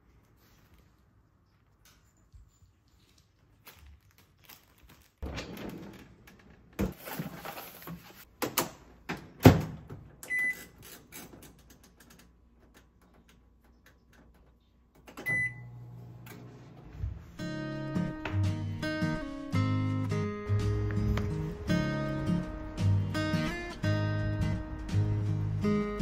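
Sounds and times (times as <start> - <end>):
microwave beep: 10.3 - 10.7, 15.2 - 16.0
microwave humming: 15.2 - 26.0.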